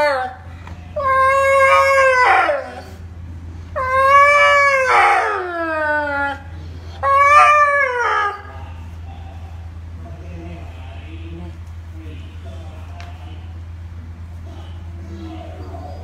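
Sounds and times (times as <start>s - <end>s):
dog howling: 0.0s - 3.1s, 3.8s - 9.7s, 14.4s - 16.0s.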